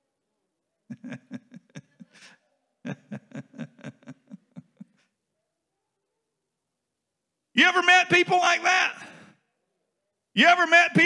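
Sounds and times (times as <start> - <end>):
person laughing: 0.9 - 5.1.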